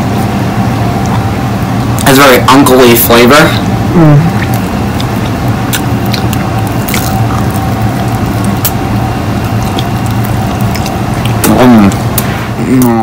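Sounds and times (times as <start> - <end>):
low background hum: 0.0 - 13.0
person chewing food: 1.0 - 1.3, 4.3 - 13.0
wet mouth clicks: 4.3 - 8.8, 9.5 - 13.0.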